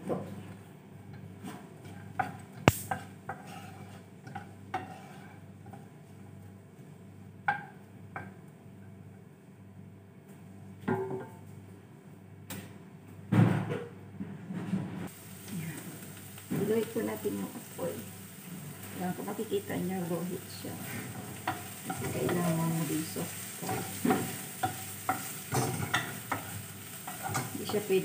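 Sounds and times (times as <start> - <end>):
spoon knocking and scraping pan: 1.1 - 5.9, 20.0 - 28.0.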